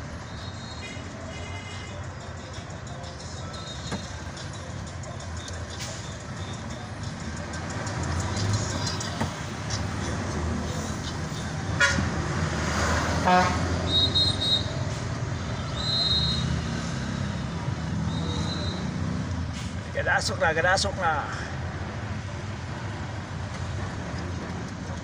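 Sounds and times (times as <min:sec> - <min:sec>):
car horn toots: 0:11.8 - 0:12.1, 0:13.2 - 0:14.7.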